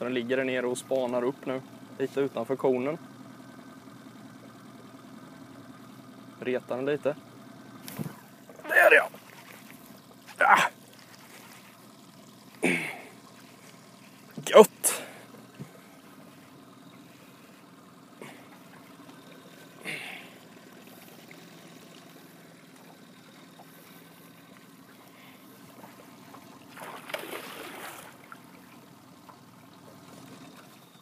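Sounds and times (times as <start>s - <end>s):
faint steady hum: 0.0s - 31.0s
water lapping against boat hull: 7.7s - 31.0s.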